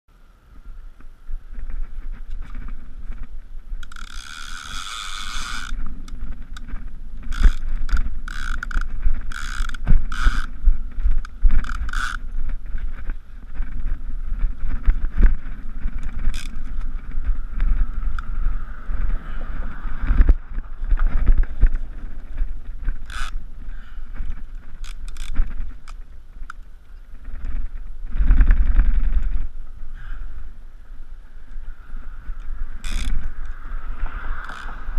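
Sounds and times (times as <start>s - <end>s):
wind rumble: 0.1s - 34.9s
microphone handling noise: 0.6s - 30.2s
fishing reel ratcheting: 3.8s - 13.8s, 15.1s - 18.3s, 22.9s - 23.4s, 24.4s - 26.6s, 32.4s - 33.7s, 34.3s - 34.9s.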